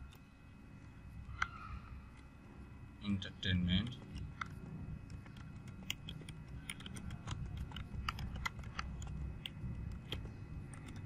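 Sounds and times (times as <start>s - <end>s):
low steady hum: 0.0s - 11.0s
keyboard keystroke clicks: 4.1s - 11.0s.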